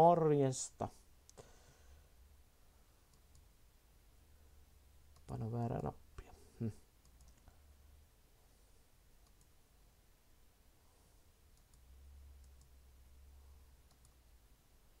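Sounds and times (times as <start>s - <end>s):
faint low hum: 0.0s - 15.0s
computer mouse clicks: 3.1s - 3.5s, 5.1s - 5.4s, 7.0s - 7.6s, 9.2s - 9.6s, 11.5s - 12.8s, 13.8s - 14.2s.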